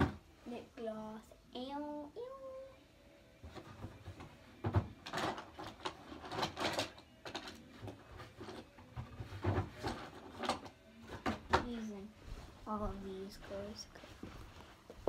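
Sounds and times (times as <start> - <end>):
small objects knocking and clattering: 4.7 - 11.4.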